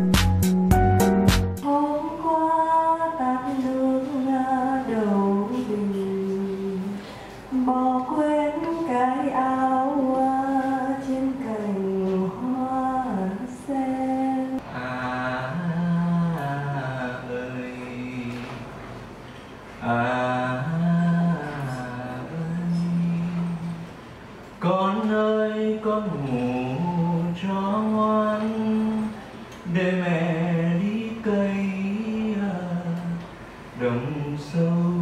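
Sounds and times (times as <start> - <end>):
woman singing a lullaby: 1.6 - 14.6.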